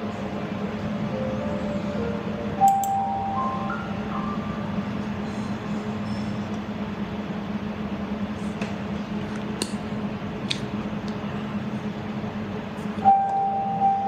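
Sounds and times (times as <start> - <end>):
steady high tone: 0.0 - 6.3, 13.0 - 14.0.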